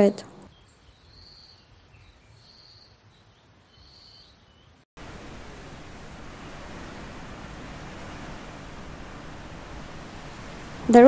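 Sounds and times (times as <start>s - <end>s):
small birds chirping: 0.1s - 4.8s
faint low rumble: 5.0s - 11.0s
gusting wind: 5.0s - 11.0s
heavy storm rain: 5.0s - 11.0s.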